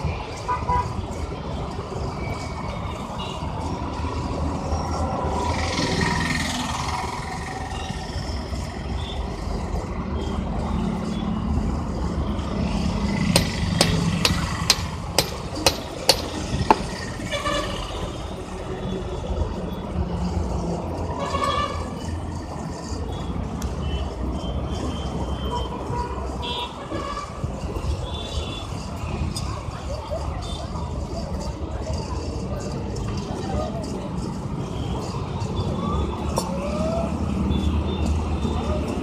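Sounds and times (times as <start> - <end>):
road traffic rumble: 0.0 - 39.0
sharp metallic taps: 13.3 - 17.0.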